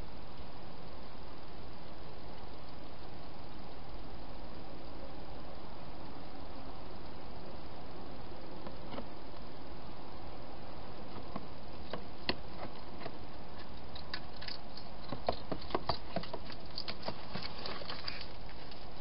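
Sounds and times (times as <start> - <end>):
steady hiss: 0.0 - 19.0
hedgehog eating clicks and crunches: 11.1 - 19.0.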